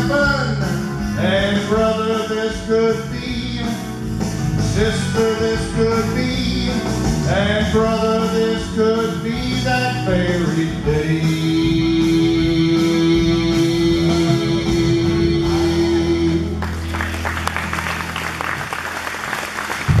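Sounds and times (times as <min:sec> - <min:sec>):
man singing gospel: 0:00.0 - 0:16.6
instrumental accompaniment: 0:00.0 - 0:20.0
audience applause: 0:16.6 - 0:20.0.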